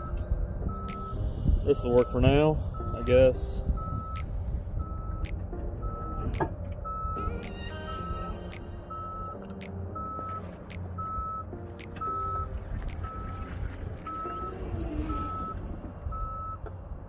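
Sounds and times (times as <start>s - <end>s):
reverse alarm beeping: 0.0s - 10.4s, 11.0s - 16.6s
forklift running: 13.0s - 16.9s.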